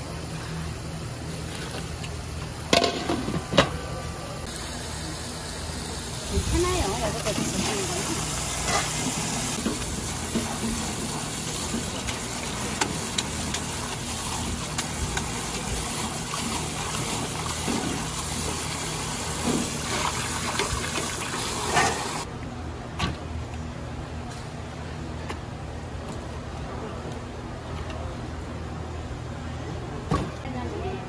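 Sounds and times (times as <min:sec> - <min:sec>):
tap water rushing into sink: 0:09.6 - 0:22.2.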